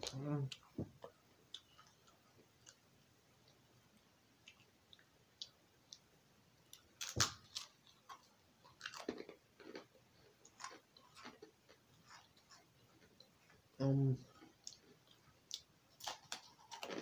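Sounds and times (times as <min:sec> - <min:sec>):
crunching and chewing: 0:06.7 - 0:13.6, 0:14.2 - 0:17.0.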